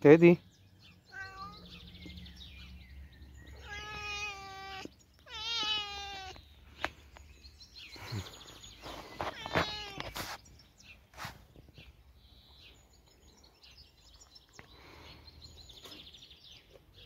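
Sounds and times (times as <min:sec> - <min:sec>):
cat meowing: 0:01.1 - 0:01.8, 0:03.5 - 0:06.4, 0:09.2 - 0:10.2.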